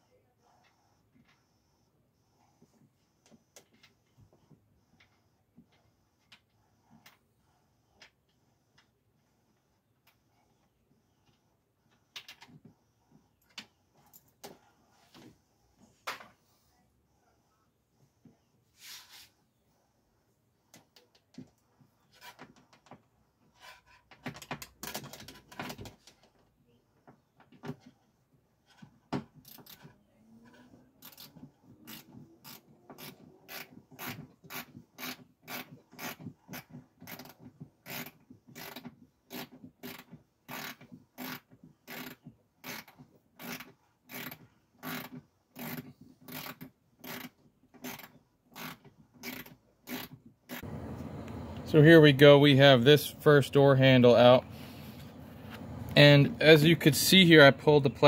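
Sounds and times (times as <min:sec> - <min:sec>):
tool handling clicks and rubbing: 0:20.7 - 0:26.3, 0:28.6 - 0:50.8.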